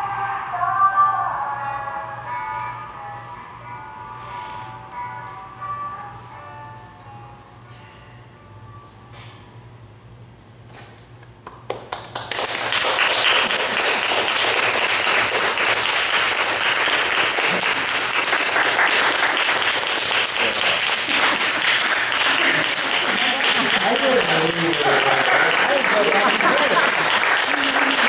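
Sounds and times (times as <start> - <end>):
audience applauding: 11.5 - 28.0.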